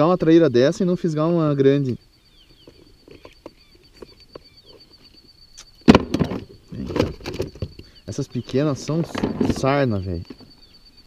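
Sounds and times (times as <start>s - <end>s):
faint chirps: 0.0s - 11.0s
rustling and knocks of handling: 2.6s - 7.9s, 8.9s - 10.6s.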